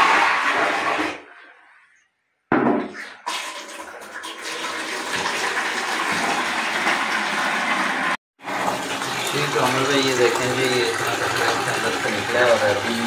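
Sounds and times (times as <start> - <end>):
water running: 3.0 - 13.0.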